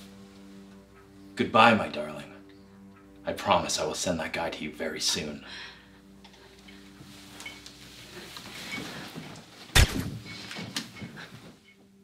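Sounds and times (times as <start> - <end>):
gunshot: 9.8 - 10.2.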